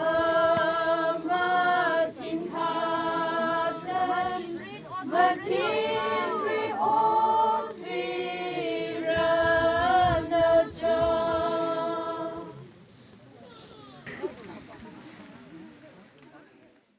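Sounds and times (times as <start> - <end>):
group singing long notes: 0.0 - 12.7.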